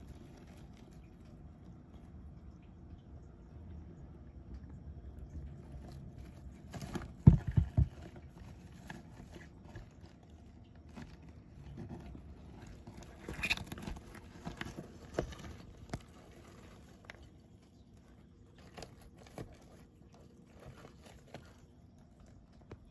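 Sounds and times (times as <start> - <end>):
tortoise scraping on dry chips: 11.4 - 21.9.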